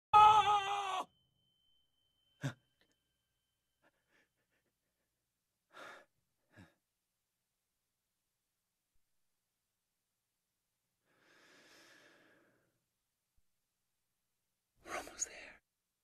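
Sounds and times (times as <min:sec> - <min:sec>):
faint high steady tone: 0:01.0 - 0:05.7
man breathing: 0:05.7 - 0:06.8, 0:11.1 - 0:12.7.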